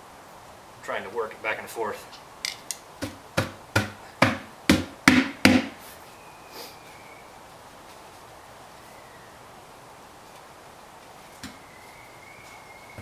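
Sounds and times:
screwdriver knocking on metal ring: 2.4 - 2.8.

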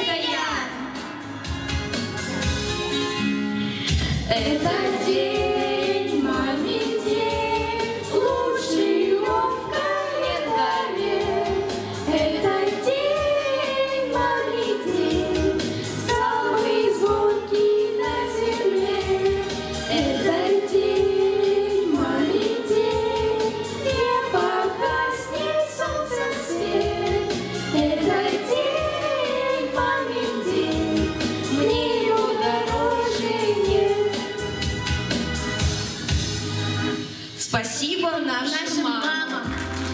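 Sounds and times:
musical accompaniment: 0.0 - 37.5, 39.3 - 39.9
children singing together: 4.3 - 34.2.

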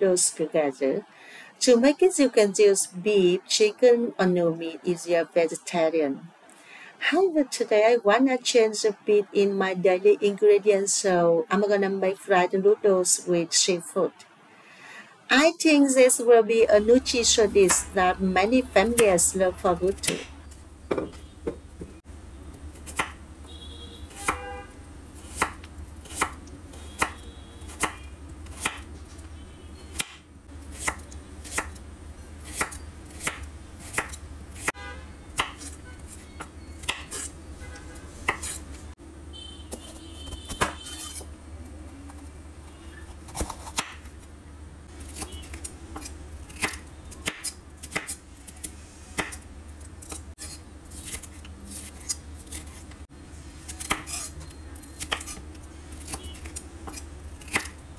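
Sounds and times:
knife chopping on wooden board: 40.4 - 41.2.

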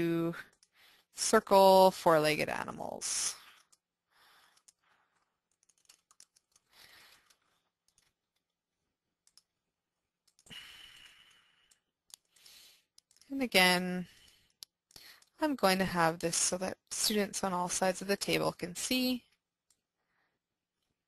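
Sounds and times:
keyboard typing: 3.4 - 8.6, 9.2 - 9.6, 10.2 - 10.5, 11.6 - 13.4.

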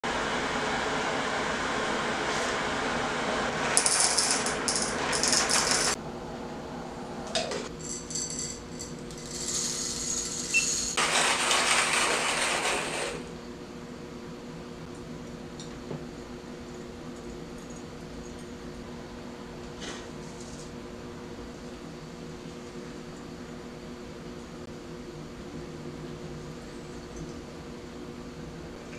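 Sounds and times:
coffee beans rattling into metal cup: 3.7 - 6.0, 7.8 - 13.0.

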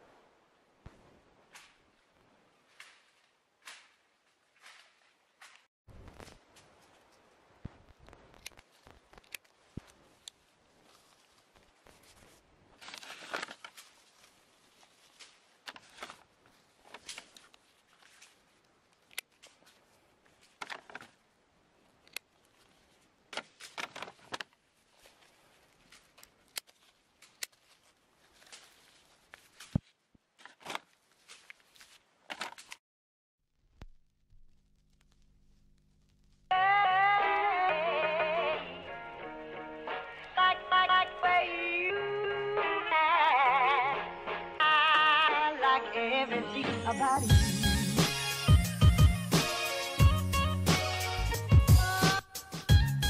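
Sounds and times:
pruning shears snipping: 1.5 - 1.8, 2.7 - 5.7, 25.9 - 27.8
leaves and grass rustling: 1.5 - 32.8.

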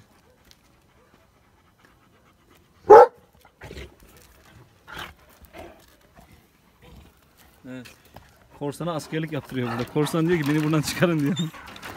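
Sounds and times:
dog panting: 0.0 - 3.6
dog barking: 2.8 - 3.2
dogs scuffling: 4.0 - 11.9.

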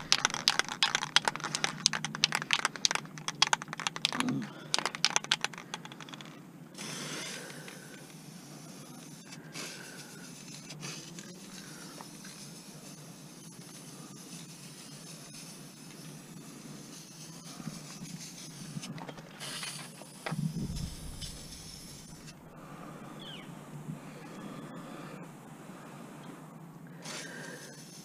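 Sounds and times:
spray can being shaken: 0.0 - 22.4, 27.0 - 28.0
hiss of paint spraying: 6.8 - 22.4, 27.0 - 28.0.

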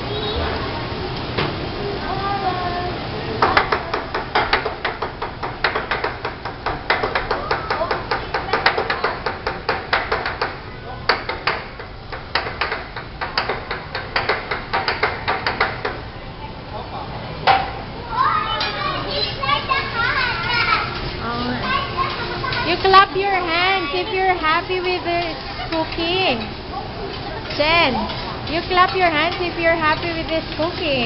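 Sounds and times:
metal utensils clacking on griddle: 24.5 - 31.0.

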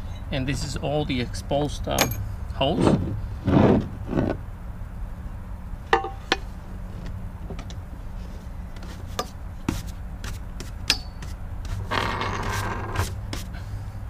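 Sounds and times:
steady low hum: 0.0 - 14.0
tools clicking and tapping: 2.0 - 2.2, 6.0 - 6.4, 10.6 - 11.8.

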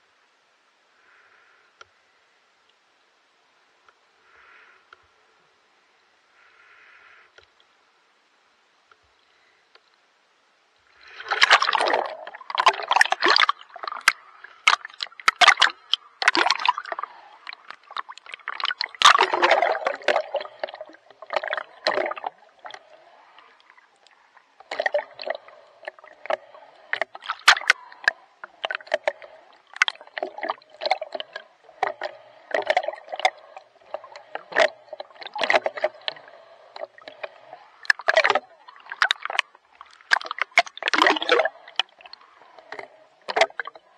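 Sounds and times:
water splashing from swimming strokes: 11.0 - 43.9.

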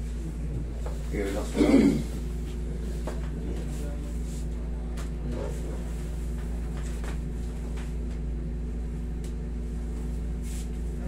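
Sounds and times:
air conditioner humming: 0.0 - 11.0.

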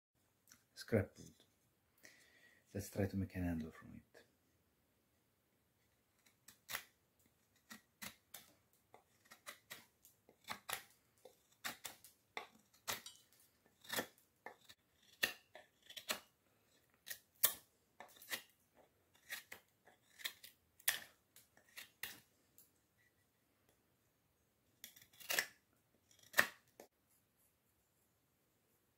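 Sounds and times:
knife whittling wood: 7.6 - 22.2.

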